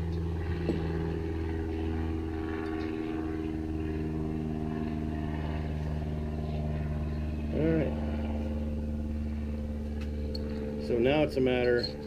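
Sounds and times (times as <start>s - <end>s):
low hum of running machine: 0.0s - 12.0s.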